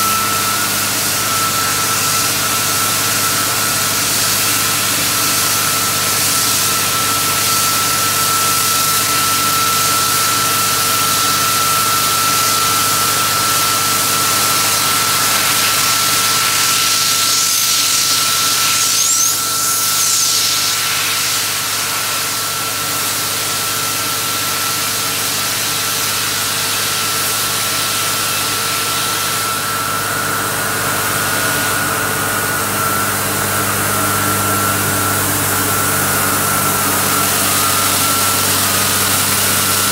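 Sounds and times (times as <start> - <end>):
machine hiss: 0.0 - 29.7
drill rig machine drone: 0.0 - 39.9
high whine: 0.0 - 39.9.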